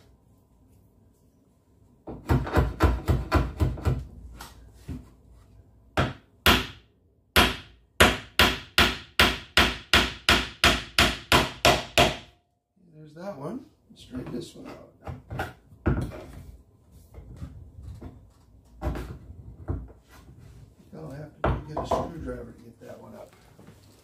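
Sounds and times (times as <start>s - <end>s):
hammer striking nails into wood: 2.1s - 4.1s, 6.0s - 12.4s.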